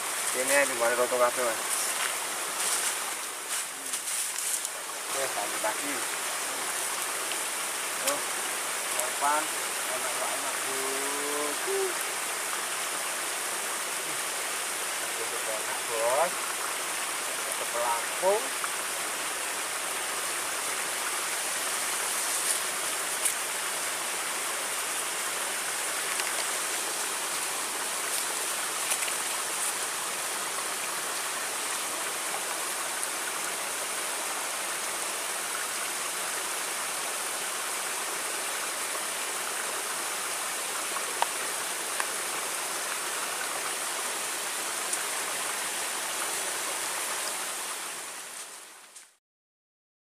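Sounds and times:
river water rushing: 0.0 - 48.9.

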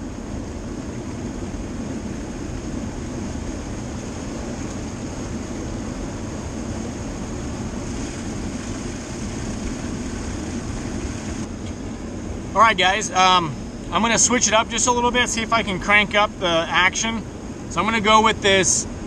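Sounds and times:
turbulent water rushing: 0.0 - 11.5.

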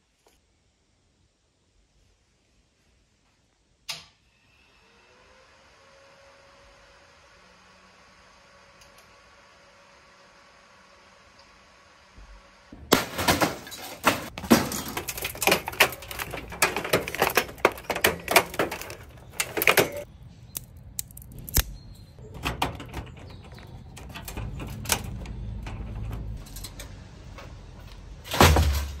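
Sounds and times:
hard objects clicking and clattering: 12.9 - 21.6.

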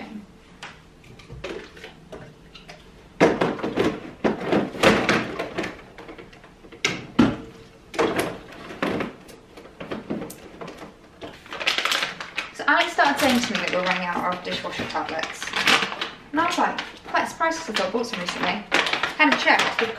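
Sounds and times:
plastic packaging crinkling: 8.2 - 19.9.

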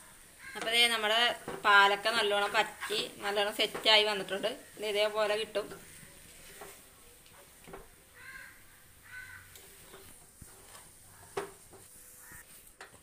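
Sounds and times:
wooden spatula stirring in pan: 0.0 - 13.0.

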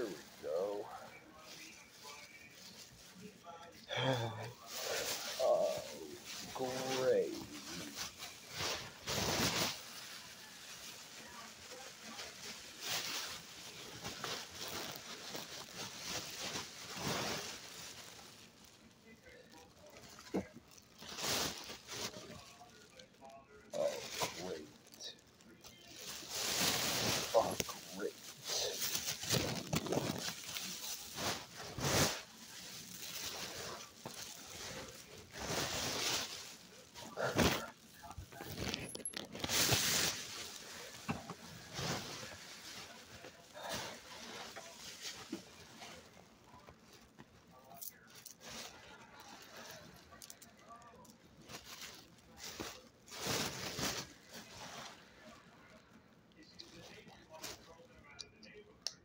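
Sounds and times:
cloth rubbing against microphone: 4.6 - 23.0, 23.7 - 50.7, 51.4 - 55.4
phone rustling against bedding: 26.0 - 47.3.

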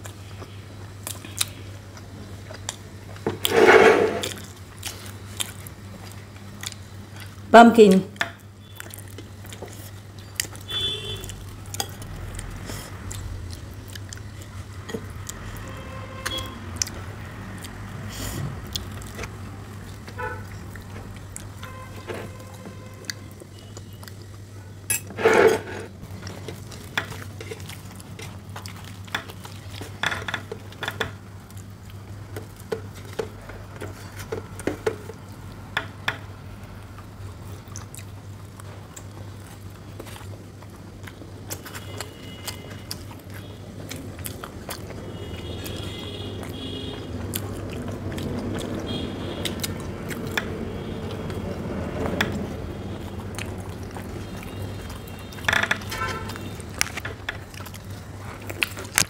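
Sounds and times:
steady low hum: 0.0 - 41.5
spoon scraping in steel bowl: 3.4 - 4.4, 24.9 - 26.0.

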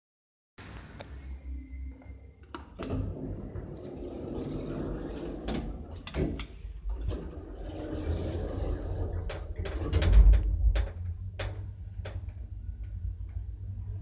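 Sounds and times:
low steady hum: 0.6 - 14.0
faint steady tone: 1.1 - 2.6
elevator doors sliding shut: 2.7 - 12.4.

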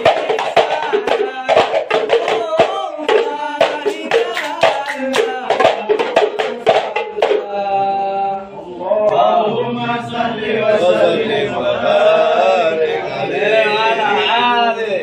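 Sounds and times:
hand claps: 0.0 - 7.4
frame drum strokes: 0.0 - 7.5
men singing together: 0.0 - 15.0.

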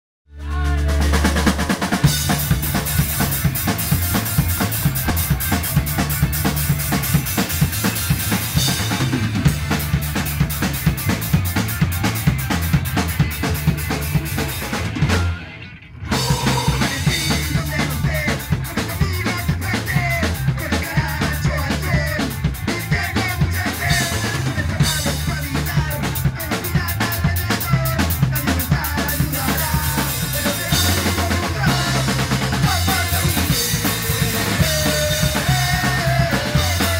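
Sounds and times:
person singing: 0.3 - 1.9, 16.1 - 36.9
rock band playing: 0.3 - 36.9.

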